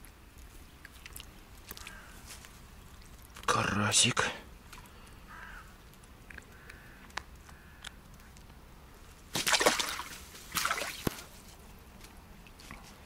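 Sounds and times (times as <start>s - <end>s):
water splashing and sloshing: 0.0s - 3.6s, 4.5s - 5.2s, 8.2s - 13.0s.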